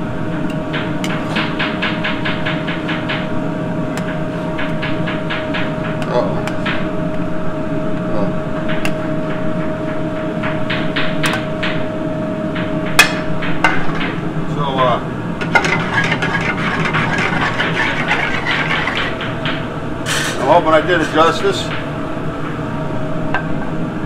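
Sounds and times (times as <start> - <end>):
kitchen background noise: 13.6 - 21.7.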